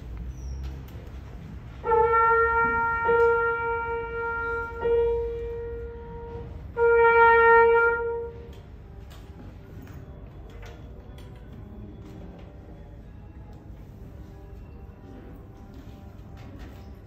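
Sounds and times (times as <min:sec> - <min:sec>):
trumpet playing long held notes: 0:01.8 - 0:08.7.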